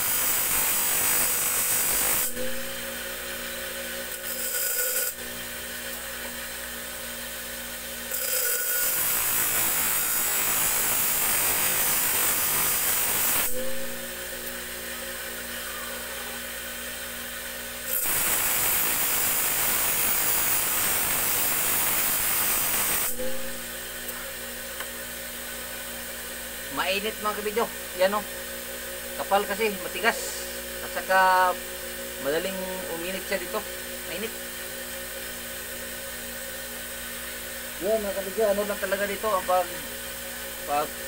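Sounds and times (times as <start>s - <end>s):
steel blade grinding: 0.0s - 2.9s, 4.0s - 5.5s, 8.1s - 14.0s, 17.9s - 23.6s
grinding wheel motor hum: 0.0s - 10.8s.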